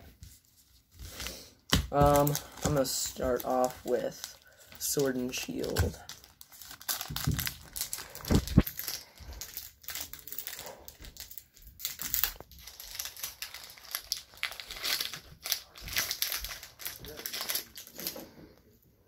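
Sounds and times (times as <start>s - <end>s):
foil wrapper crinkling: 1.0s - 18.3s.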